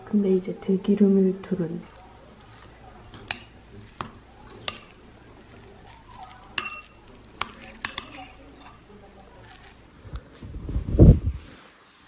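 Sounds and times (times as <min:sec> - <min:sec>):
spoon stirring rice in a bowl: 0:01.8 - 0:10.4
spoon clinking against bowl: 0:03.1 - 0:05.0, 0:06.4 - 0:08.8.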